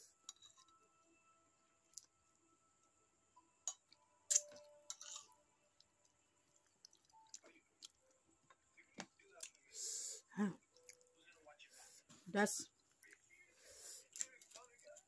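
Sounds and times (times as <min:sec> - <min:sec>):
faint chewing clicks: 0:05.8 - 0:08.6
crackers crunching: 0:14.0 - 0:15.0.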